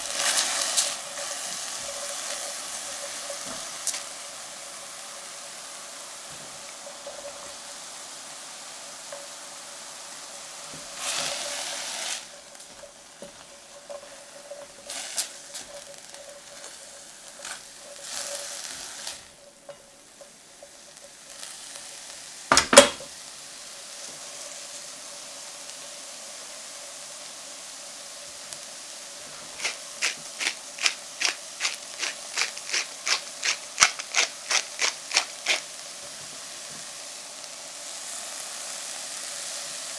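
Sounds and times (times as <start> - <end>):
spatula stirring in a pan: 0.0 - 9.4, 10.4 - 22.3, 29.2 - 36.6
vegetables sizzling in a pan: 0.0 - 39.9
knock on a pan: 22.5 - 23.1
pepper mill grinding clicks: 29.6 - 35.6.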